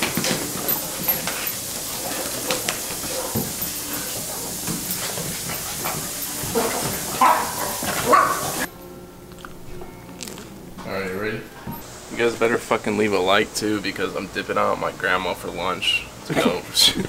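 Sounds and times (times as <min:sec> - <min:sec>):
small dogs scuffling: 0:00.0 - 0:08.7
steady hiss: 0:00.0 - 0:08.7, 0:11.5 - 0:17.0.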